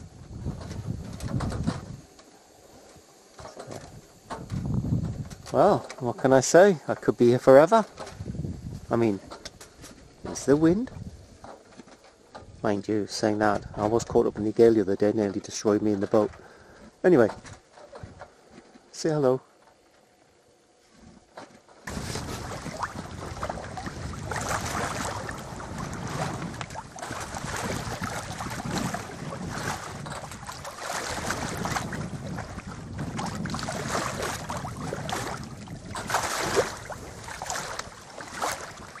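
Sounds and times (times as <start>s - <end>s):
wind on microphone: 0.0s - 2.2s, 3.0s - 5.6s, 8.0s - 11.5s, 21.8s - 39.0s
water washing against a hull: 0.0s - 5.8s, 21.6s - 39.0s.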